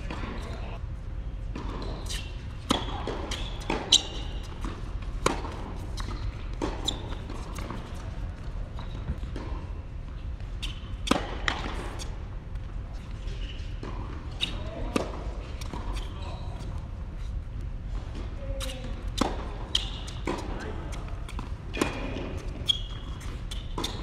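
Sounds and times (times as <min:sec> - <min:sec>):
tennis ball struck and bouncing: 0:01.6 - 0:07.8, 0:11.0 - 0:11.9, 0:19.2 - 0:20.5.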